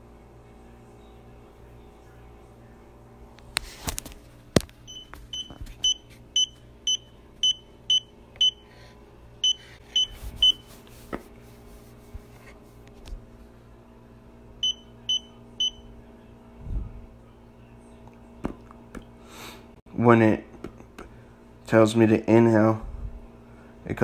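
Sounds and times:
meter beeping: 4.9s - 8.6s, 9.4s - 10.6s, 14.6s - 15.9s.

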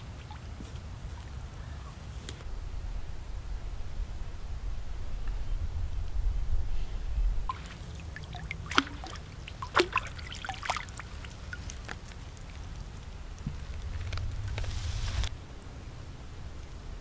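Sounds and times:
low rumble: 2.4s - 7.6s, 12.6s - 16.6s
water dripping: 7.5s - 14.8s
water splashing: 7.5s - 15.3s.

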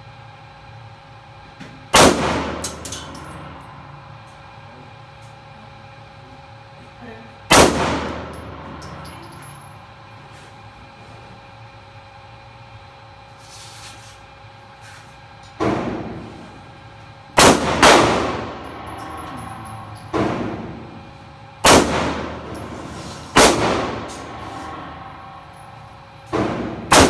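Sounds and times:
handgun shots echoing indoors: 1.9s - 3.6s, 7.5s - 9.7s, 17.4s - 21.0s, 21.6s - 27.0s.

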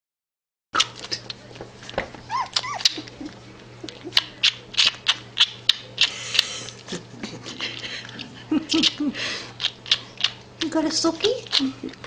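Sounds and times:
puppy sucking a pacifier: 0.8s - 1.4s, 2.3s - 6.9s, 7.7s - 12.0s
puppy whimpering: 2.2s - 4.6s.

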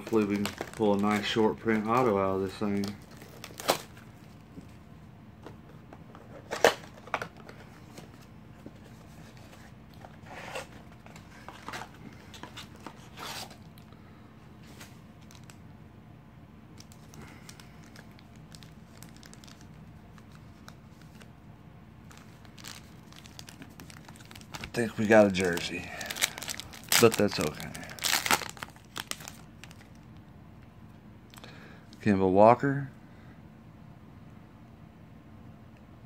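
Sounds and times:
card pack tearing: 0.0s - 4.0s, 16.8s - 21.2s, 22.1s - 30.0s
wrapper crinkling and rustling: 0.0s - 4.5s, 15.2s - 15.6s, 16.8s - 21.3s, 22.0s - 30.1s
faint steady hum: 0.0s - 36.0s.

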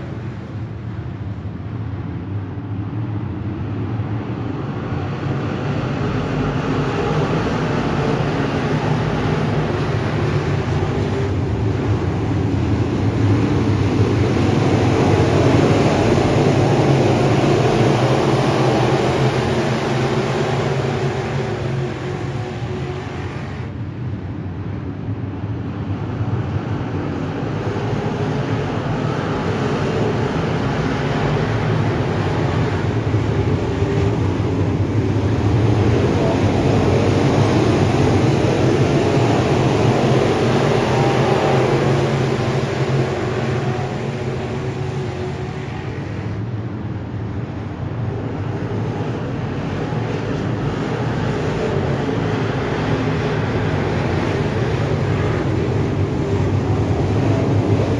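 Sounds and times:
race car engines racing: 3.3s - 24.2s, 25.6s - 57.9s.

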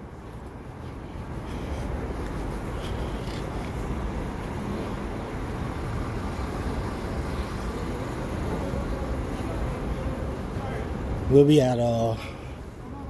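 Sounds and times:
city street traffic rumble: 0.0s - 13.0s.

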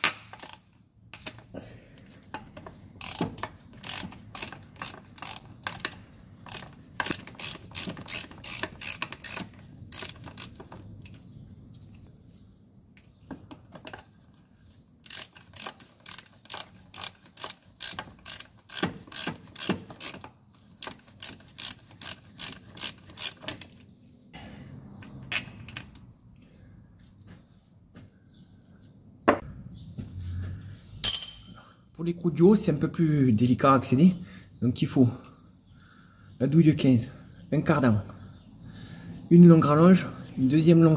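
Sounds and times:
socket ratchet clicking: 3.0s - 10.6s.

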